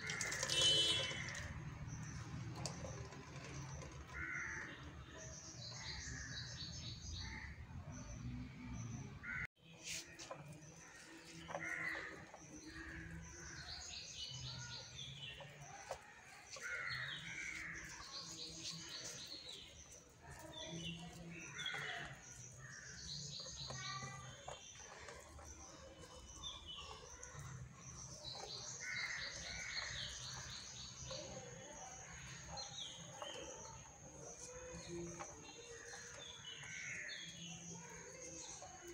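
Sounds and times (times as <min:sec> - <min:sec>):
birds chirping: 0:00.0 - 0:38.9
crows cawing: 0:04.2 - 0:04.8.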